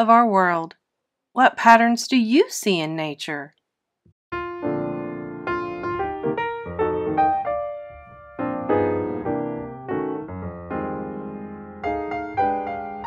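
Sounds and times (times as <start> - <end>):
gentle piano music: 4.3 - 13.0.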